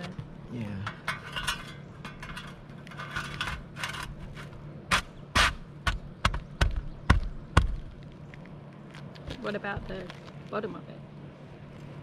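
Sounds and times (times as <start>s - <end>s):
shingles scraping and rustling: 0.8s - 5.6s.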